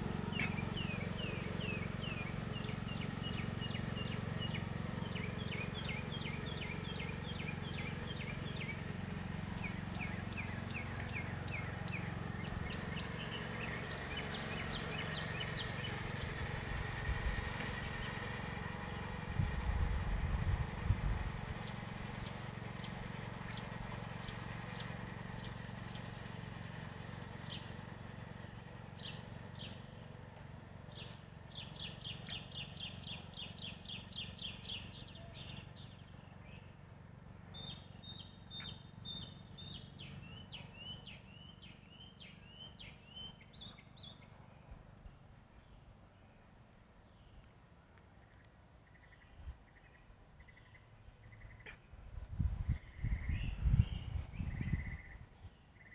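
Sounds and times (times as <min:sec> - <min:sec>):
bird chirping: 0:00.0 - 0:16.4, 0:29.0 - 0:30.0, 0:30.9 - 0:46.4, 0:48.2 - 0:51.9, 0:52.7 - 0:55.9
riding lawn mower engine humming: 0:00.0 - 0:55.9.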